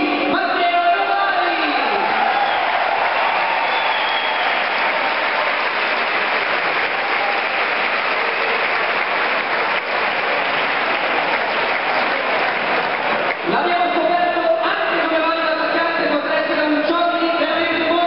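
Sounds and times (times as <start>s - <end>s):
crowd applauding: 1.6s - 15.4s.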